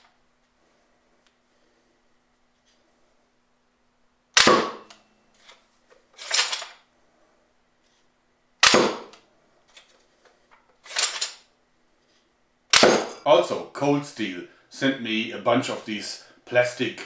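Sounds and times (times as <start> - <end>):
air gun shot pop: 4.4 - 4.9, 8.6 - 9.1, 12.7 - 13.1.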